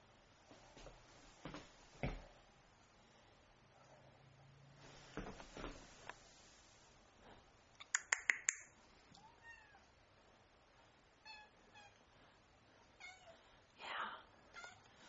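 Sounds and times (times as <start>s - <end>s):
sharp clicks: 7.8s - 8.7s.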